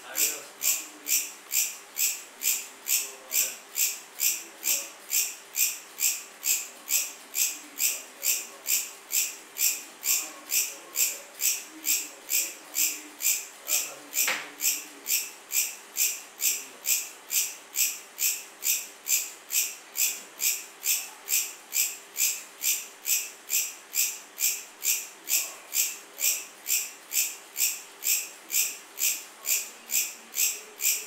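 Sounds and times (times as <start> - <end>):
cricket chirping: 14.6 - 31.0.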